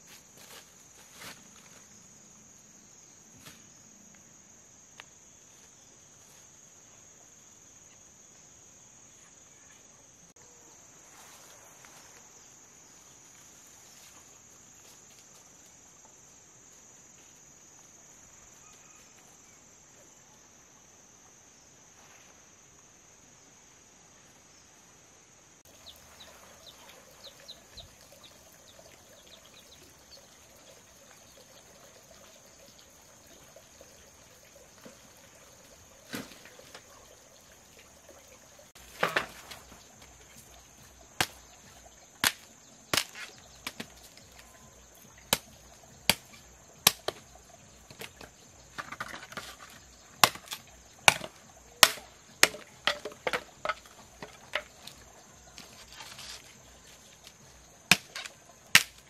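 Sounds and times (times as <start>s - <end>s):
insects chirring: 0.0s - 59.0s.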